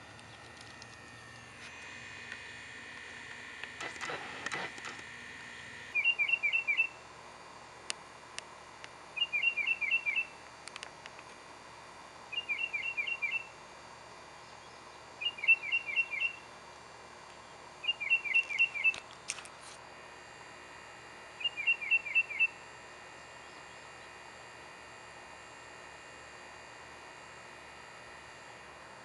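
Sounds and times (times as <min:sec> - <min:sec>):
songbird chirping: 0:06.0 - 0:07.0, 0:09.2 - 0:10.3, 0:12.3 - 0:13.5, 0:14.4 - 0:16.4, 0:17.3 - 0:19.0, 0:21.4 - 0:22.6.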